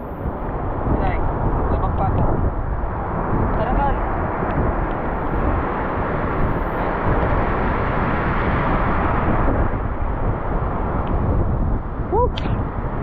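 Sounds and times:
heavy surf on shore: 0:00.0 - 0:13.0.

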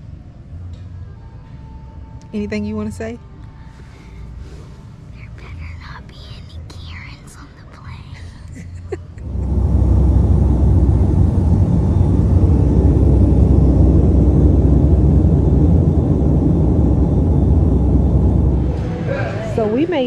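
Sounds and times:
airliner cabin rumble: 0:09.0 - 0:20.0.

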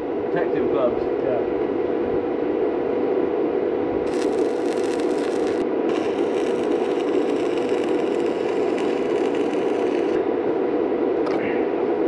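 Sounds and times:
welding arc crackling: 0:04.1 - 0:10.2.

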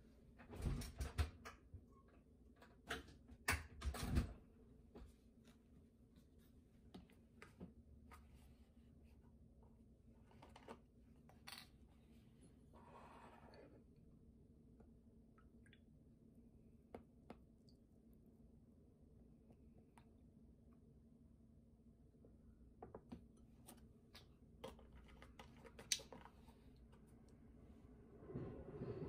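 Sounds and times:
faint hum: 0:26.3 - 0:29.0.

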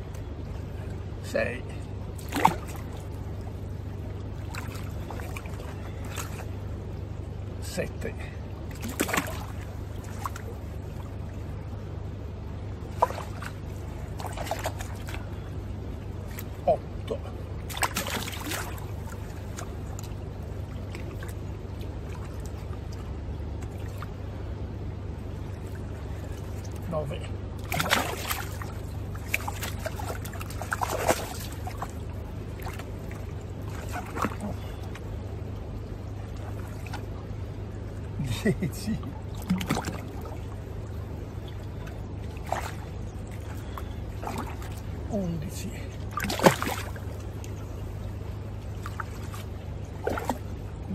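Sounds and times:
fish splashing in water: 0:08.7 - 0:10.6, 0:12.9 - 0:15.3, 0:17.6 - 0:23.0, 0:27.6 - 0:35.1, 0:39.2 - 0:45.0, 0:46.1 - 0:47.8, 0:48.7 - 0:50.8.

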